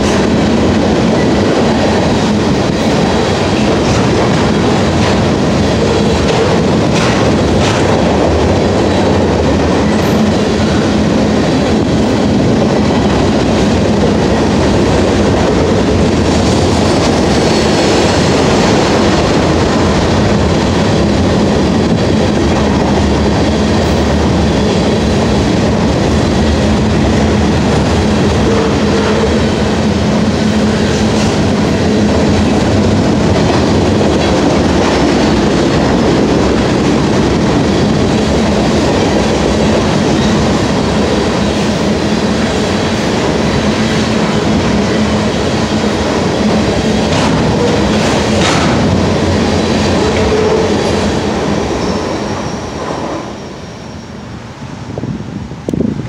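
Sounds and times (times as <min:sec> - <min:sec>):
clickety-clack over rail joints: 0:00.0 - 0:53.5
train wheels rumbling on rail: 0:00.0 - 0:56.0
sharp knocks: 0:47.1 - 0:49.0.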